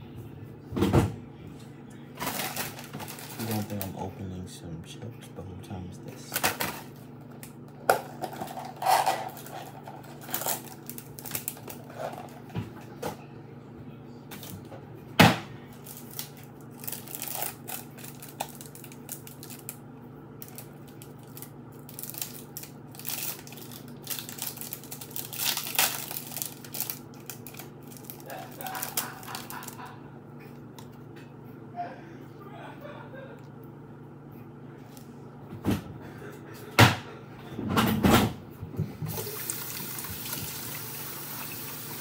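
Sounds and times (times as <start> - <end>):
steady low hum: 0.0 - 42.0
foil chip packet crinkling: 2.2 - 4.0, 6.2 - 12.3, 15.8 - 19.8, 20.4 - 29.9.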